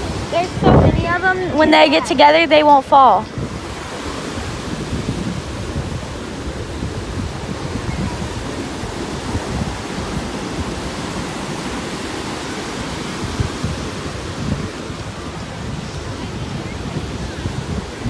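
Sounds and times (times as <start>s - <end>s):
ocean surf breaking: 0.0s - 18.0s
wind buffeting microphone: 0.0s - 18.0s.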